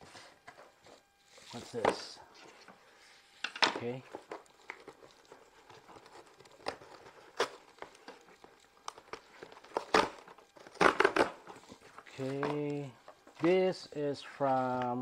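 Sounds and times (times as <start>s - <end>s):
cardboard and tape ripping: 3.8s - 12.8s.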